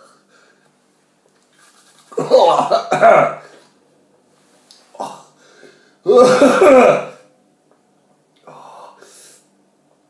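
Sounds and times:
man coughing loudly: 2.2 - 3.5, 6.1 - 7.3.

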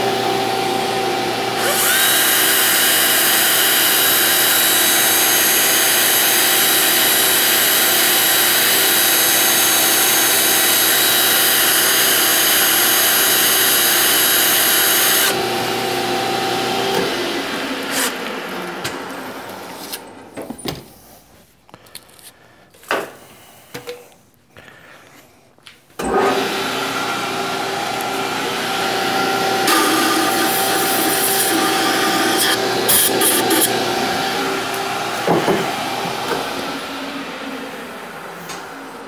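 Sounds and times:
metal lathe running with gear whine: 0.0 - 18.6, 26.1 - 36.4.

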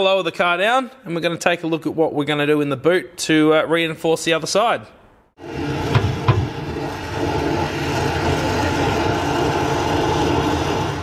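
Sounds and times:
torch flame hissing: 5.4 - 11.0.

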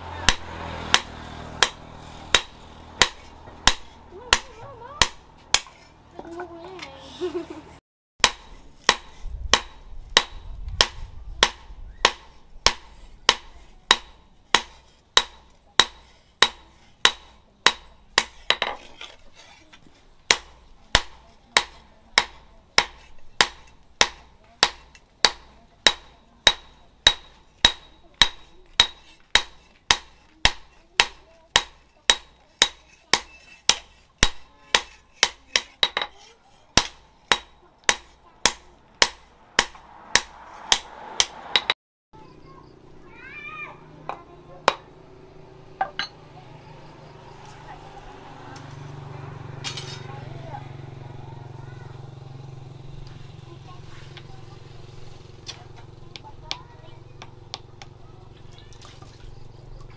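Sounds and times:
hammer striking metal on anvil: 0.2 - 5.8, 8.2 - 18.8, 20.3 - 36.1, 36.8 - 41.8, 45.8 - 46.2.

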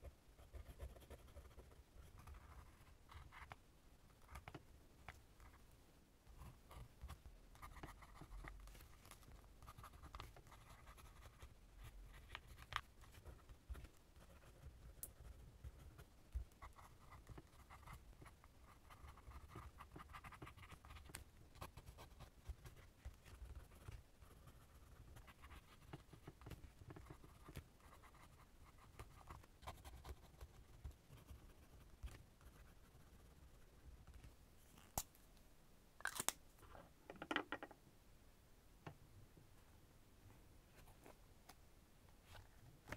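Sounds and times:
fountain pen scratching paper: 16.6 - 31.8.

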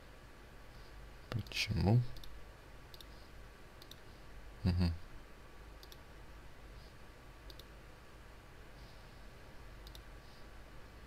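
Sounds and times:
faint computer mouse clicks: 1.3 - 3.2, 3.8 - 4.0, 5.8 - 6.0, 7.4 - 7.8, 9.8 - 10.1.

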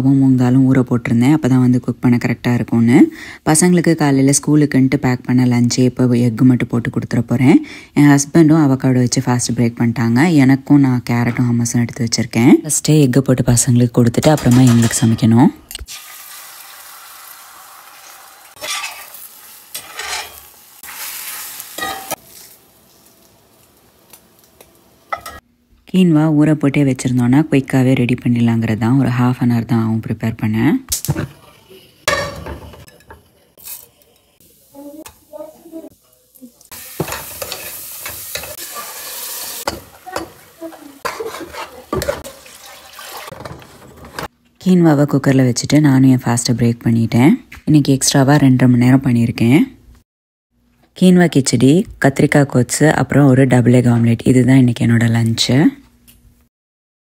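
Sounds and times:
eggs sizzling in a skillet: 15.8 - 25.4, 31.0 - 44.0
spatula scraping a skillet: 18.6 - 23.1, 36.7 - 44.3.

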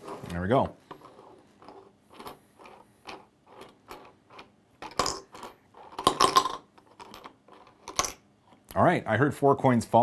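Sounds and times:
coin clinking into tube: 2.2 - 8.2.

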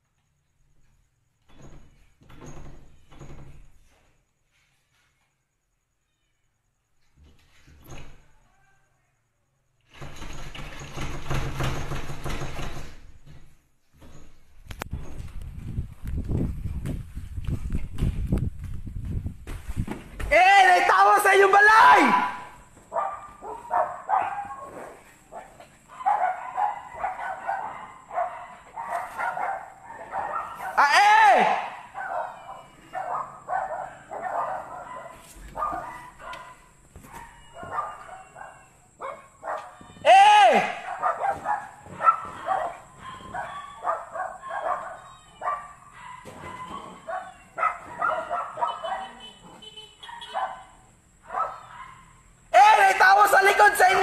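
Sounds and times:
dogs barking and yelping: 22.8 - 30.8, 31.7 - 40.0, 40.8 - 52.4.

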